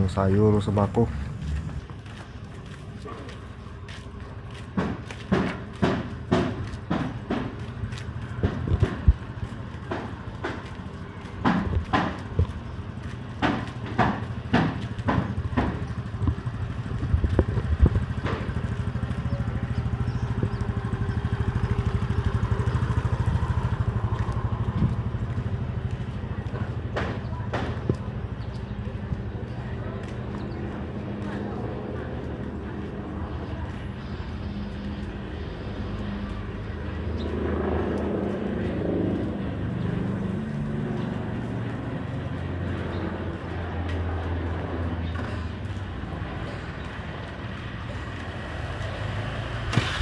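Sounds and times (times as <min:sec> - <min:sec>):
engine running: 0:00.0 - 0:50.0
footsteps walking: 0:00.2 - 0:18.8.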